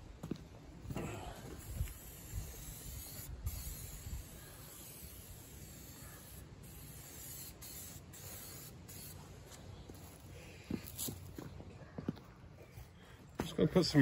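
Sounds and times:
spray paint can hissing: 0:01.6 - 0:11.3.

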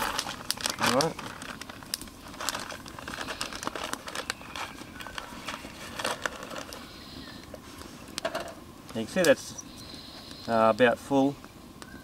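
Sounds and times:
bag crinkling and rustling: 0:00.0 - 0:07.5.

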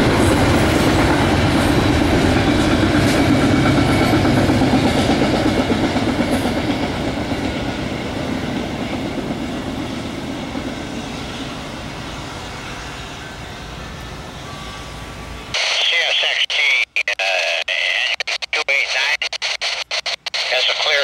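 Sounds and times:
freight train rolling past: 0:00.0 - 0:15.6.

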